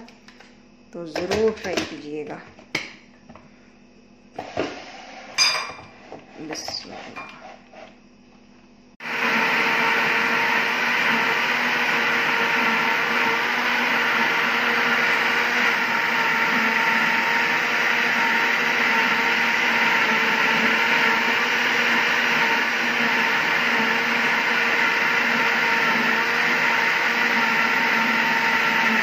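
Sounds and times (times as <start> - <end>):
blender running: 4.4 - 5.4, 9.0 - 29.0.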